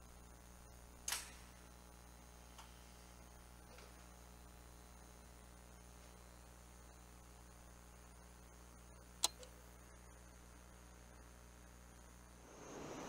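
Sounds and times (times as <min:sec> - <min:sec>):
electrical hum and hiss: 0:00.0 - 0:13.0.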